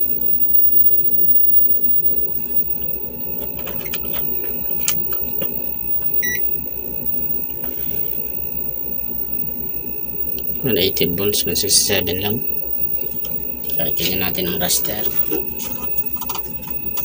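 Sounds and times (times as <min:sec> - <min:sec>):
low electrical hum: 0:00.0 - 0:17.0
short electronic beep: 0:06.2 - 0:06.4.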